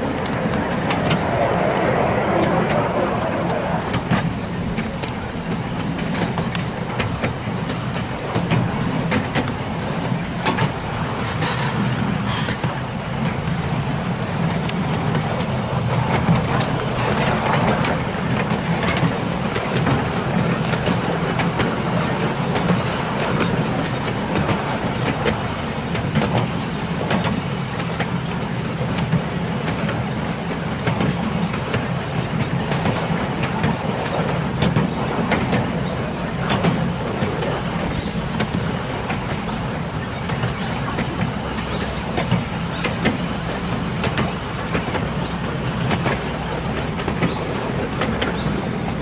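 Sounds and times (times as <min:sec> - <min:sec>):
locomotive engine humming: 0:00.0 - 0:49.0
wheels clicking over track: 0:00.0 - 0:49.0.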